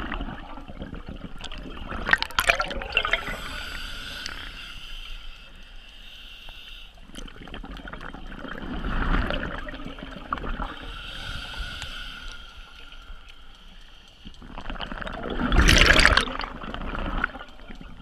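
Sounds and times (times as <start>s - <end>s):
exhaled bubbles gurgling: 0.0s - 4.4s, 7.2s - 10.9s, 14.4s - 18.0s
regulator hissing inhalation: 3.1s - 7.0s, 10.7s - 13.1s.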